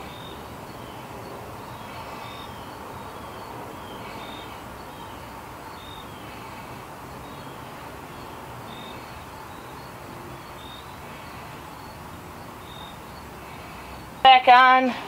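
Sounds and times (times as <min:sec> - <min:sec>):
outdoor background noise: 0:00.0 - 0:15.0.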